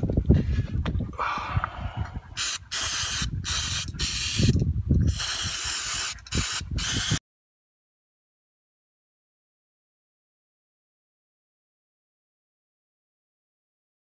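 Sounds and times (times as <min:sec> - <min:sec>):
aerosol can spraying: 0:02.4 - 0:07.2.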